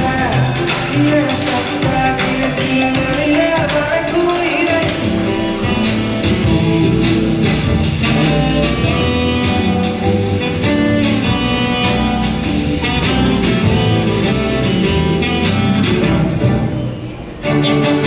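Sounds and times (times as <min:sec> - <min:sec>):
loud dance music: 0:00.0 - 0:18.0.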